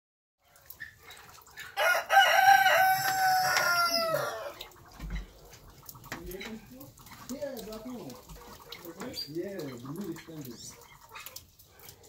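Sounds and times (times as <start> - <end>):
rooster crowing: 1.8 - 4.6.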